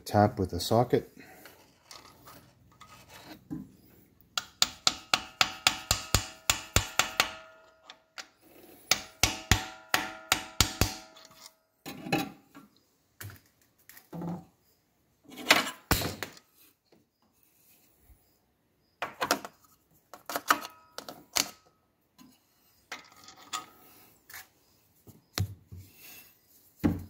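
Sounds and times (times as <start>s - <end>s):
metal knocks and scrapes: 1.5s - 8.0s, 8.7s - 12.7s.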